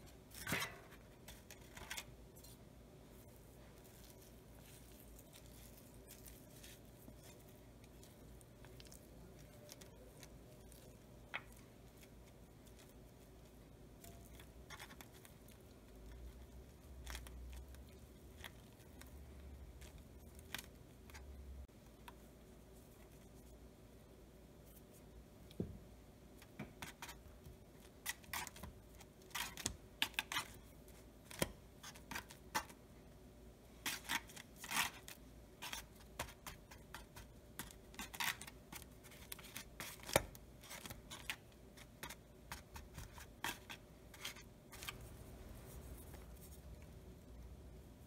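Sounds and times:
hands rubbing dough: 0.0 - 23.8, 33.7 - 48.0.

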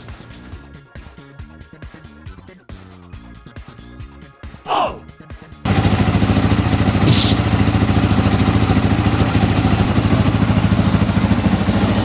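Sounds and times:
motorcycle engine idling: 5.6 - 12.0
short hiss: 7.1 - 7.4.

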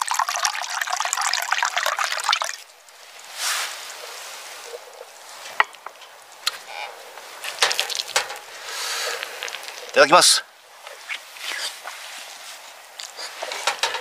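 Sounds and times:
wine pouring into a cup: 0.0 - 2.7.

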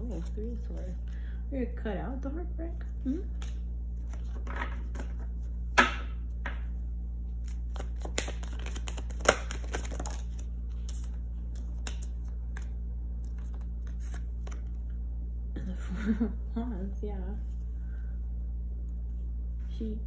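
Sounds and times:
steady low hum: 0.0 - 20.0
cards shuffling: 3.3 - 5.5, 7.3 - 14.9
card snaps: 7.7 - 10.2.

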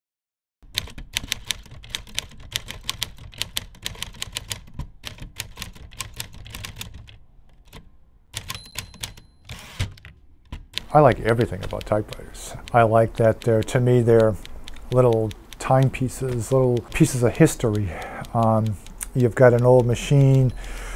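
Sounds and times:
typewriter key strikes: 7.7 - 20.7.

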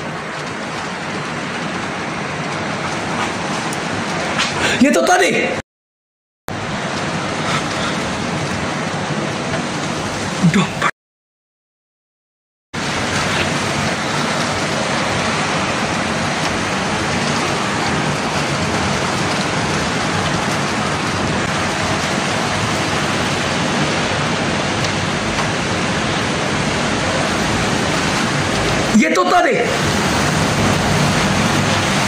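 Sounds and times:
wind-driven rain hissing: 0.0 - 5.2, 6.5 - 10.9, 12.8 - 32.0.

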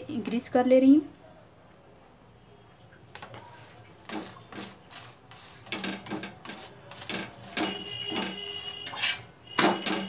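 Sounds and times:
spatula scraping on hot griddle: 4.0 - 10.0.

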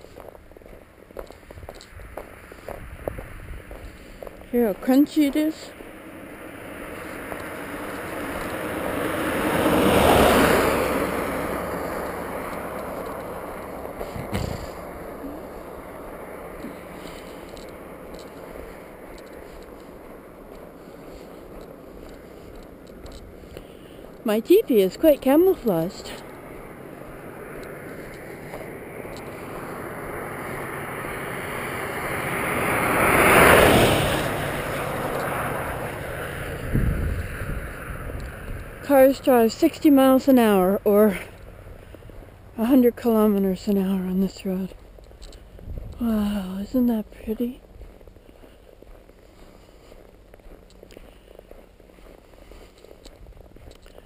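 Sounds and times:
car passing on wet road: 0.0 - 45.0
short thump: 14.2 - 14.7.

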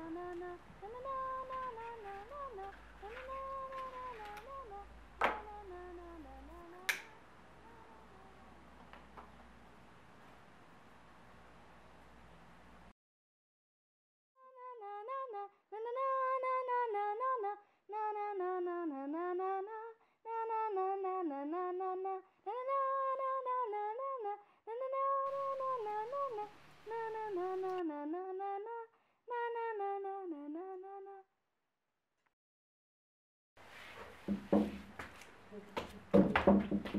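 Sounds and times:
woman humming: 5.4 - 8.7
faint hiss: 25.3 - 29.1.

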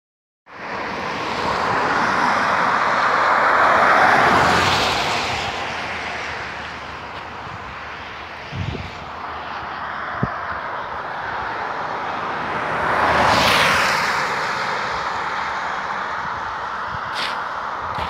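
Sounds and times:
car tyres hissing on wet road: 17.1 - 17.8.

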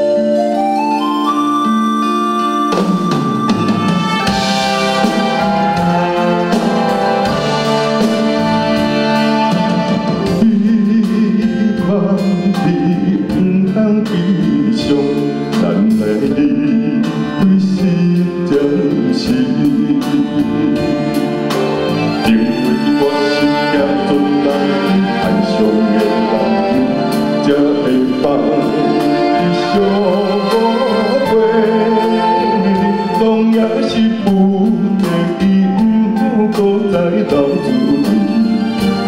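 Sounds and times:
band accompaniment: 0.0 - 39.0
man singing a slow ballad: 10.2 - 21.4, 22.1 - 39.0.

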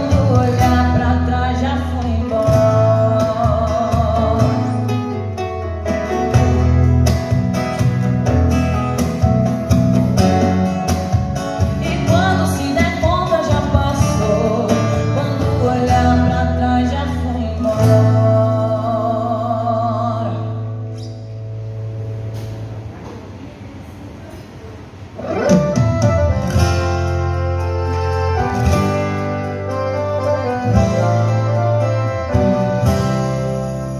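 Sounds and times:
woman singing: 0.0 - 4.9, 11.7 - 20.7
acoustic guitar: 0.0 - 33.9.

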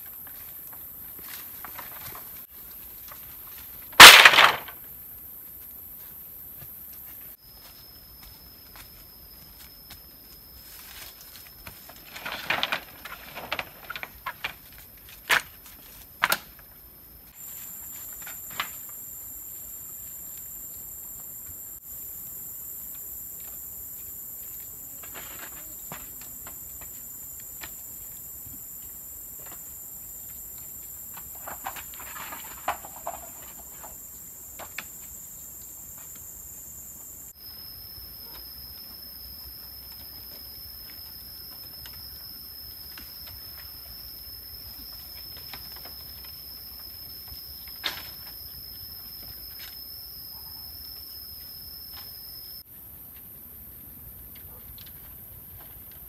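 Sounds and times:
high-pitched insect chorus: 0.0 - 53.8
sharp knocks of bamboo: 4.0 - 4.8.

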